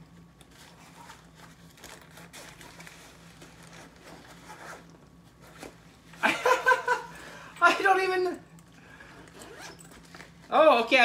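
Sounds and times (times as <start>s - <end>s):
backpack rustling and scraping: 0.5s - 5.8s, 9.0s - 10.6s
zippers being worked: 3.6s - 5.7s, 9.1s - 10.4s.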